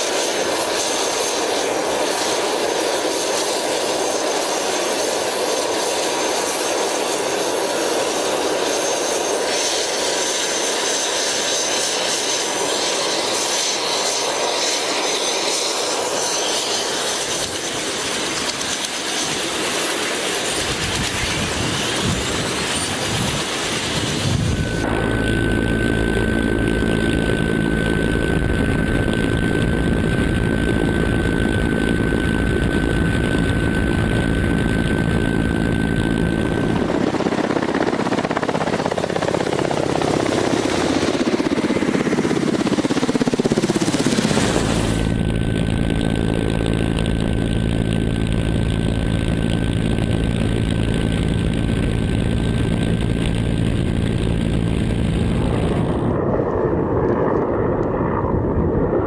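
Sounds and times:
helicopter rotor rushing: 0.0s - 59.0s
helicopter turbine whine: 0.0s - 59.0s
deep low rumble: 44.6s - 59.0s.

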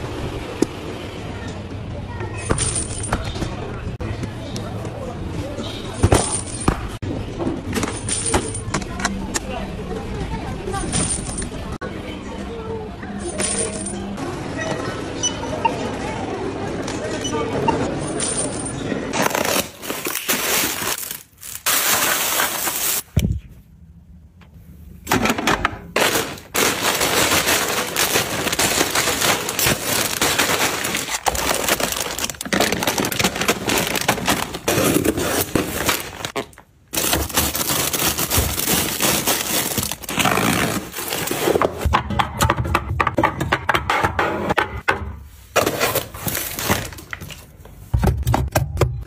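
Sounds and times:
paper receipt rustling: 19.2s - 23.1s, 26.0s - 41.7s
plastic packaging crinkling: 19.2s - 23.1s, 26.0s - 41.5s.

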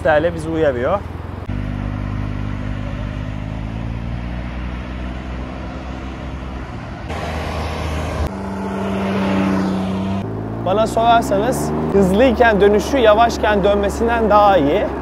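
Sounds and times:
engine running steadily: 0.0s - 15.0s
rushing noise: 6.8s - 10.7s.

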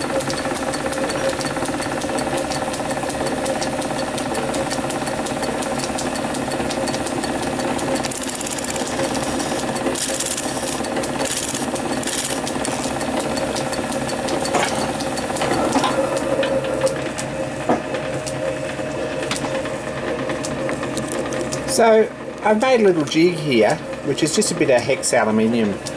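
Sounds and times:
metal lathe running: 0.0s - 25.9s
sharp ticks: 0.1s - 15.4s.

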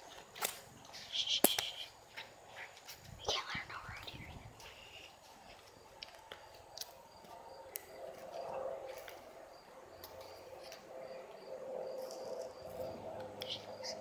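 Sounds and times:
high insect-like chirp: 0.1s - 14.0s.

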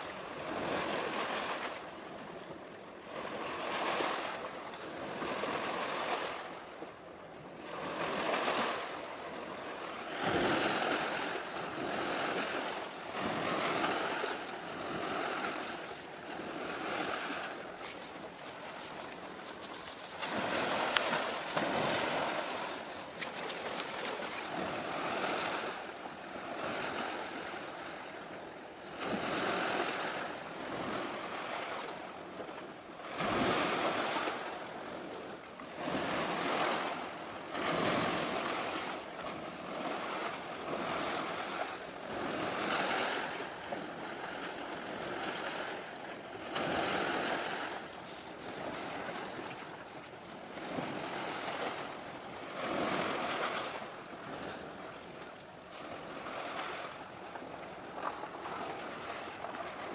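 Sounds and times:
small waves washing on shore: 0.0s - 59.9s.

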